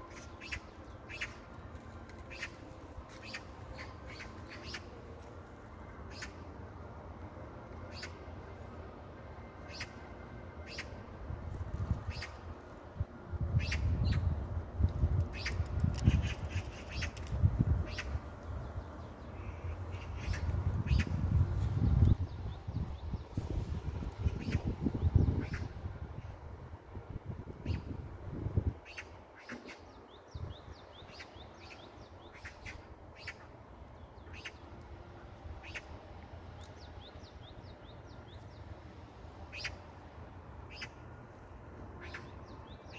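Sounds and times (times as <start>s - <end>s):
low steady rumble: 0.0s - 28.8s
magpie calls: 0.1s - 1.4s.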